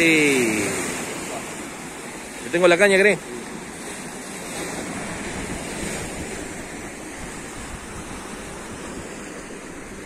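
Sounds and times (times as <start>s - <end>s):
waves washing on shore: 0.0s - 10.0s
wind on microphone: 4.5s - 10.0s.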